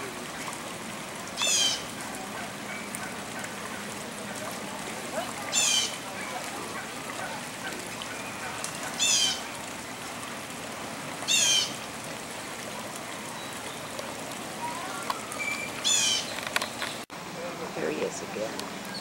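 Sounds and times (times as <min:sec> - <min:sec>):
bird warbling trill: 0:14.6 - 0:16.4.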